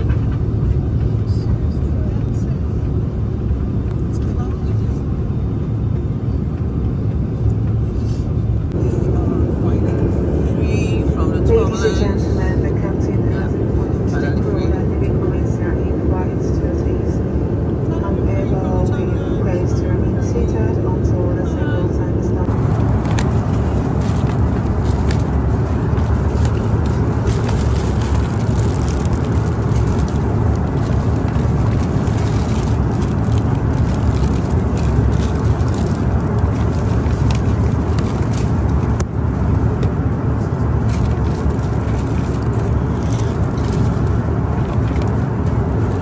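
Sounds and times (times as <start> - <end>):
airliner cabin engine rumble: 0.0 - 46.0
plastic snack wrapper crinkling: 22.5 - 39.0, 40.8 - 46.0.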